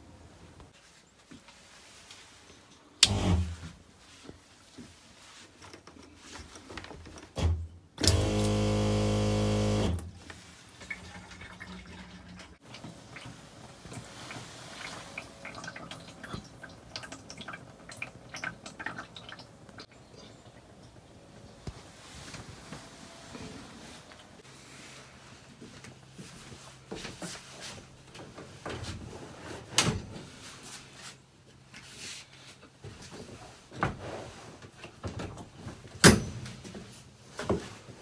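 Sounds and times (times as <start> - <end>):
electric water pump buzzing: 8.0 - 10.1
water dripping: 14.8 - 21.0.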